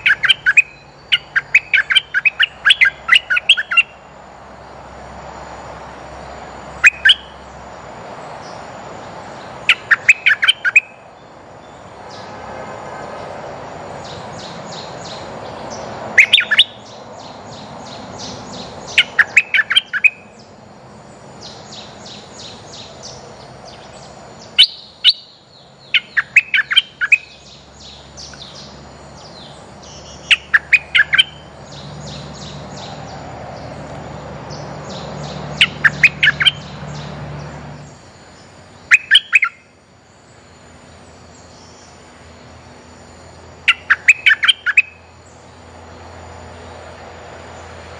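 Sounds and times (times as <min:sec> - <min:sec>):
rapid high chirping: 0:00.0 - 0:04.2, 0:06.6 - 0:07.5, 0:09.4 - 0:11.1, 0:16.1 - 0:20.5, 0:24.0 - 0:33.0, 0:34.8 - 0:36.9, 0:37.9 - 0:39.7, 0:43.6 - 0:45.2.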